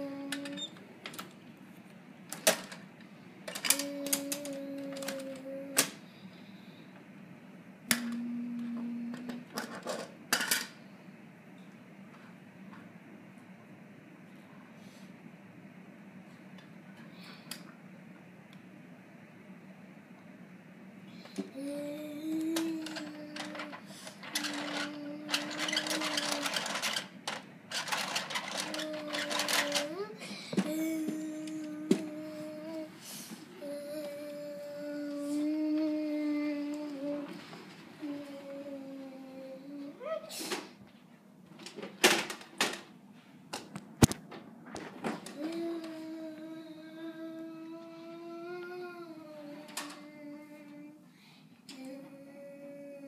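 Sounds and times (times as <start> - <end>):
steady hum: 0.0 - 53.0
plastic toy clicking and clattering: 3.5 - 5.9, 22.6 - 30.0.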